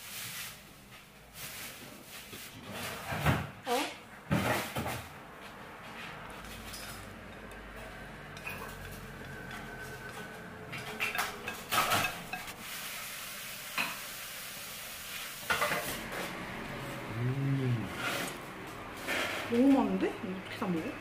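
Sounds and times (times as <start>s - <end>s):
metal utensils scraping a plate: 6.4s - 12.6s.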